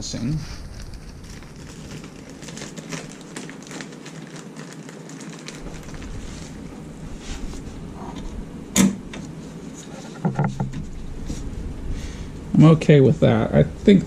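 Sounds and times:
wiring harness rustling: 0:00.0 - 0:11.5
sharp knocks: 0:10.2 - 0:10.9.

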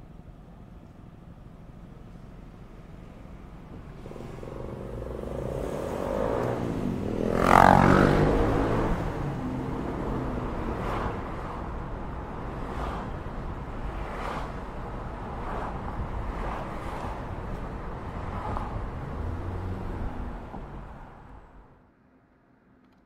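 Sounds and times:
road noise: 0:00.0 - 0:23.0
car passing by: 0:03.8 - 0:21.6.

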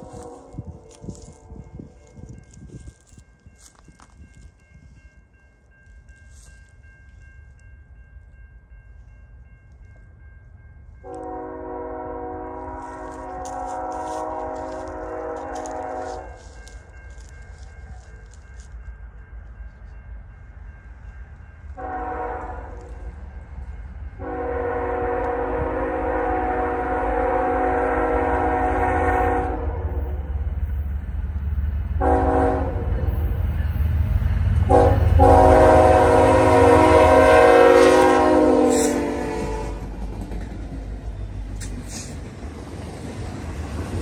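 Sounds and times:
locomotive air horn blasts: 0:00.0 - 0:01.8, 0:11.0 - 0:16.7, 0:21.8 - 0:23.0, 0:24.2 - 0:30.1, 0:32.0 - 0:33.1, 0:34.7 - 0:39.8
freight train rumble: 0:00.0 - 0:44.0.

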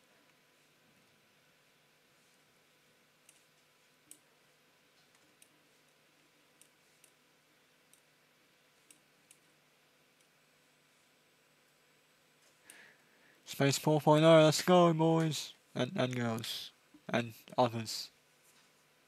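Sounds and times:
computer mouse clicks: 0:03.2 - 0:04.3, 0:04.9 - 0:05.6, 0:06.6 - 0:07.2, 0:07.9 - 0:08.1.

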